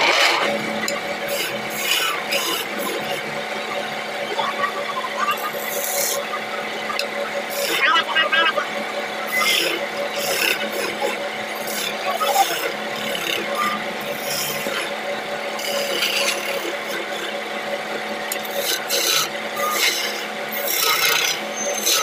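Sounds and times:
wood lathe humming: 0.0s - 22.0s
chisel rasping wood: 1.2s - 3.3s, 7.5s - 7.9s, 9.3s - 14.9s, 15.6s - 17.4s, 18.3s - 22.0s.

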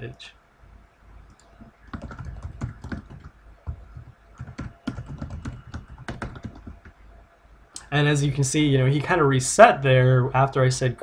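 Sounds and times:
keyboard typing: 1.3s - 7.0s.

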